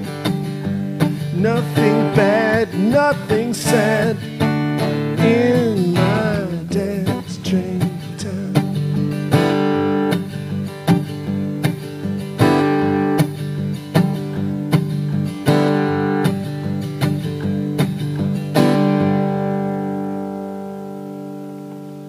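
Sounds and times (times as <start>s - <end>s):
acoustic guitar strumming: 0.0s - 22.0s.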